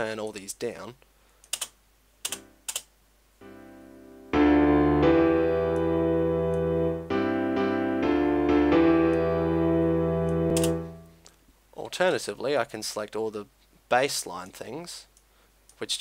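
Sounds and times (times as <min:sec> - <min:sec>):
piano chords: 0:03.4 - 0:11.2.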